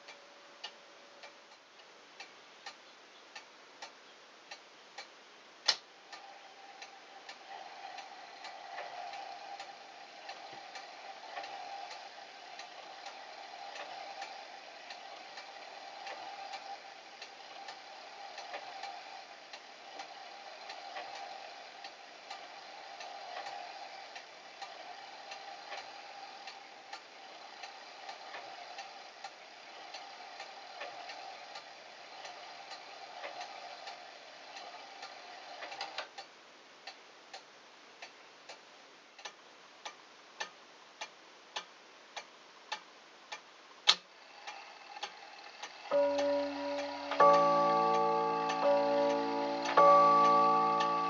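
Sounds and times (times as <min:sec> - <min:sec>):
clock ticking: 0:39.2 - 0:51.0
background hum: 0:45.8 - 0:51.0
clock chime rods ringing: 0:45.9 - 0:51.0.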